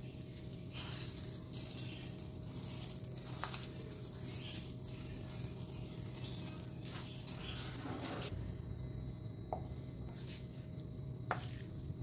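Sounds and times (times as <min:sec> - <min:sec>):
low steady hum: 0:00.0 - 0:12.0
dry lentils rattling into a bowl: 0:00.7 - 0:07.4.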